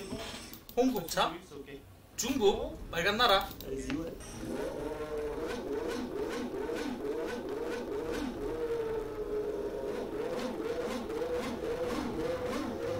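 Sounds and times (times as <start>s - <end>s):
racing engine revving: 4.1s - 12.9s.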